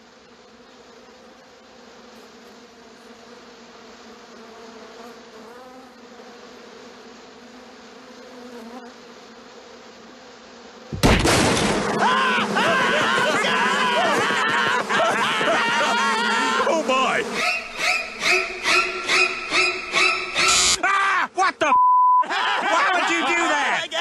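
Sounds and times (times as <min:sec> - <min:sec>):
bees buzzing: 0:00.0 - 0:20.8
loud outburst of voices: 0:11.8 - 0:17.3.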